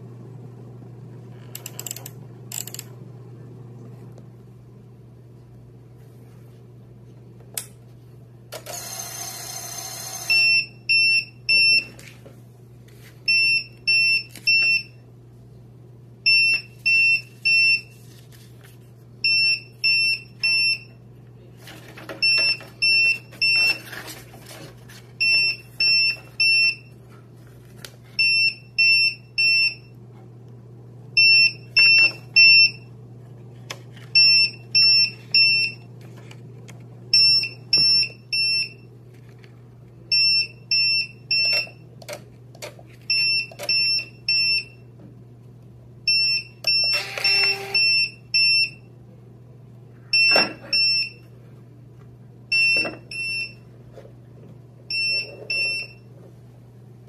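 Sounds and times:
printer buzzer short high beeps: 8.6s - 11.9s, 46.1s - 48.8s
faint paper rustling: 17.9s - 19.0s.

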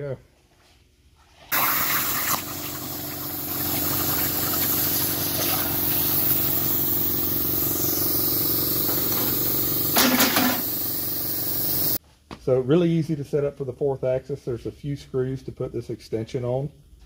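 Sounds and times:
plasma cutter hissing: 1.5s - 12.0s.

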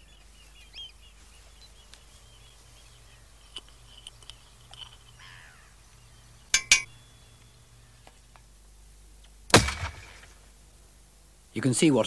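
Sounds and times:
small birds chirping: 0.0s - 9.4s
faint low hum: 0.0s - 12.0s.

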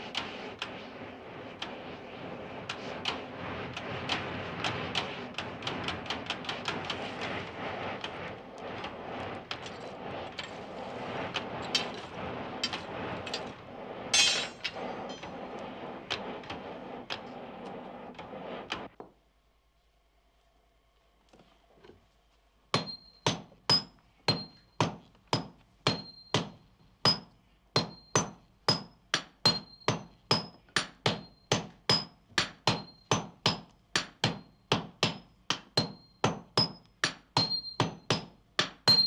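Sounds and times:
fire crackling: 0.0s - 19.0s
hiss: 0.0s - 19.0s, 25.4s - 39.0s
steady rushing noise: 0.0s - 19.0s.

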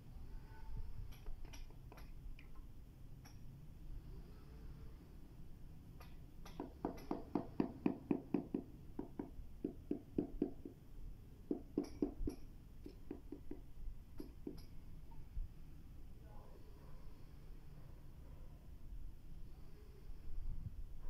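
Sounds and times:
mallet knocking on ceramic tile: 6.4s - 10.8s, 11.5s - 14.7s.

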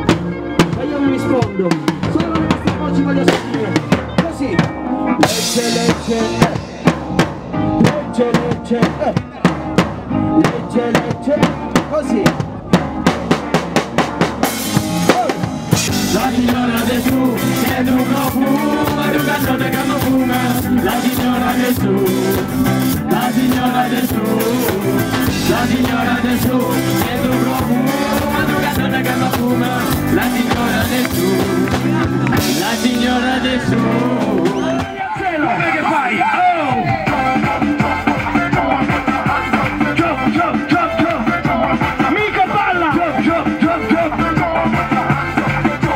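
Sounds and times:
drum kit hits: 0.0s - 35.0s
reggae band playing: 0.0s - 45.9s.

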